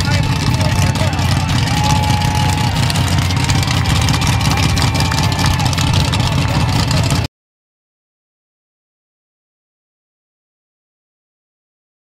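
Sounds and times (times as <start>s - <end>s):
truck engine idling: 0.0s - 7.3s.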